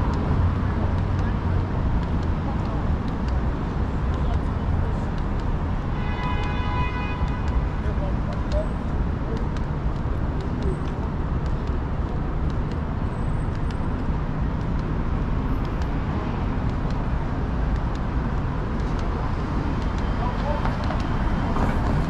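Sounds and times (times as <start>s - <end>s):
rumble of passing cars: 0.0s - 22.0s
faint clicks: 6.2s - 16.0s, 16.6s - 21.1s.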